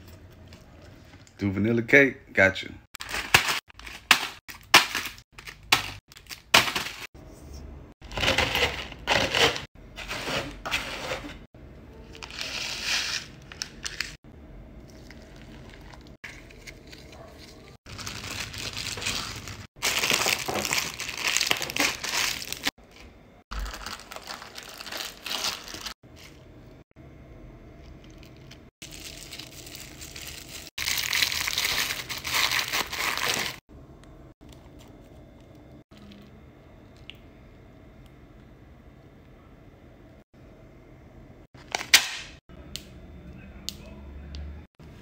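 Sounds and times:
plastic bag crinkling: 14.9 - 26.4, 28.0 - 33.6.

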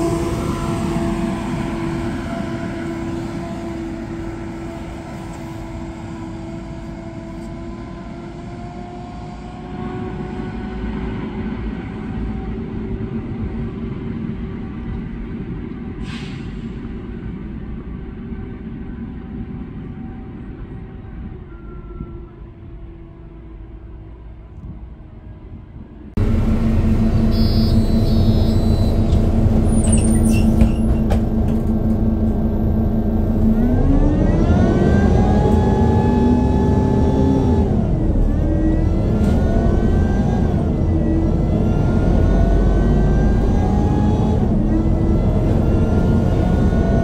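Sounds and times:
bus engine rumble: 0.0 - 47.0.

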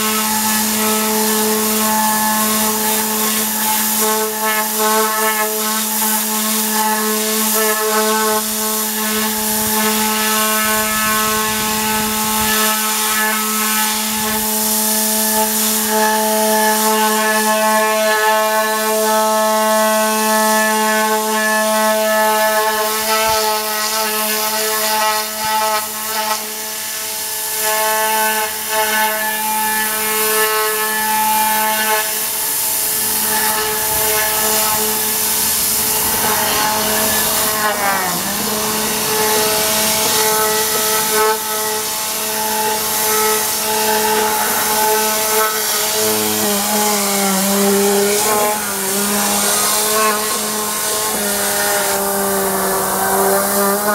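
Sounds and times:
compressed air gun hissing: 31.9 - 53.9
steady machine hum: 32.1 - 53.9.

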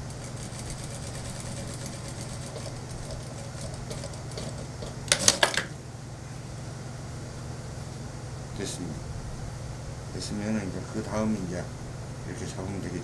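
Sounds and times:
sewing machine stitching: 0.0 - 5.5
steady low hum: 0.0 - 13.0.

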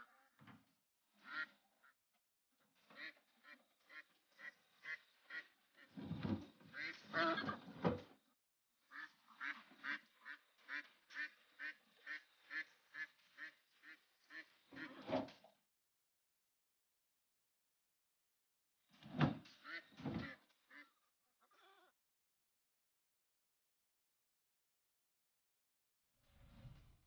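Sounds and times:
ducks quacking: 1.2 - 2.0, 2.8 - 7.8, 8.8 - 15.4, 19.5 - 21.9.

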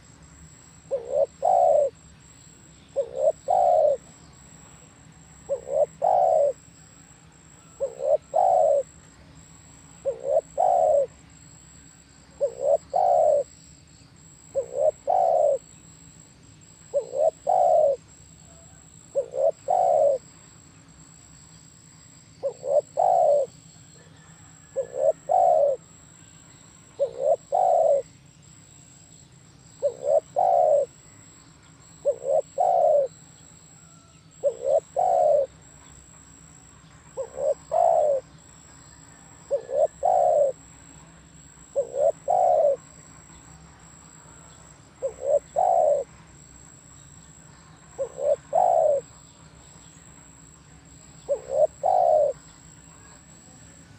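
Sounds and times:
dove cooing: 0.8 - 2.1, 2.9 - 11.2, 12.3 - 13.5, 14.4 - 15.7, 16.7 - 20.3, 22.4 - 26.0, 26.9 - 28.1, 29.8 - 31.2, 31.8 - 43.3, 43.9 - 46.8, 47.8 - 49.2, 50.4 - 53.5.

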